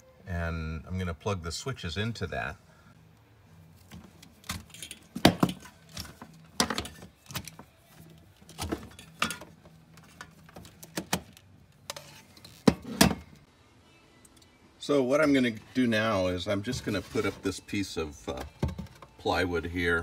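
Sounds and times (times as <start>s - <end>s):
plugs and power strip rattling: 8.4s - 11.5s.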